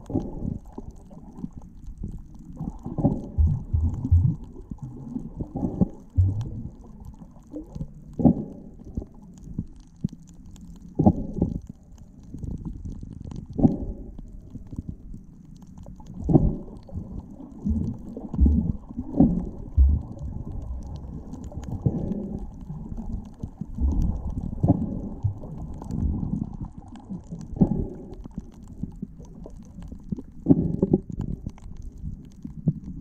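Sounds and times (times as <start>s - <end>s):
muffled underwater water rumble: 0.0s - 33.0s
dull underwater thumps: 3.3s - 5.0s, 6.2s - 6.7s, 17.7s - 21.0s.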